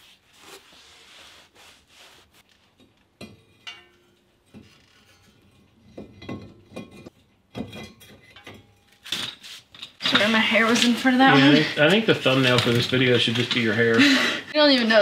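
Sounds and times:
metallic clinks and knocks: 2.7 - 10.8.

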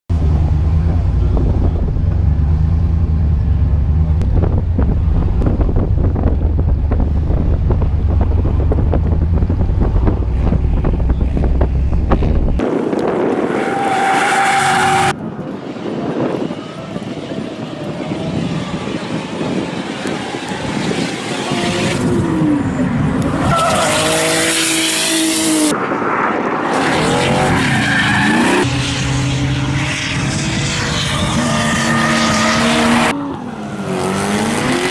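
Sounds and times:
heavy low rumble: 0.1 - 13.4
car engines revving: 0.1 - 34.9.

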